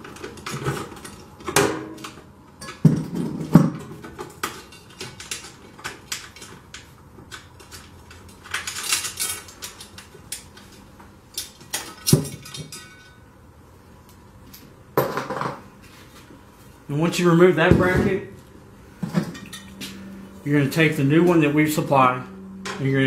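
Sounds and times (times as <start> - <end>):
metal bracket clinking and scraping: 0.1 - 13.2, 19.1 - 20.2.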